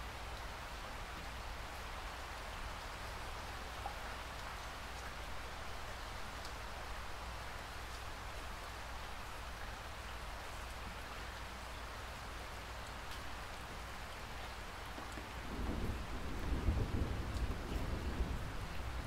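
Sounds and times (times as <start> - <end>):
steady rain falling: 0.0 - 19.0
rolling thunder: 15.2 - 19.0.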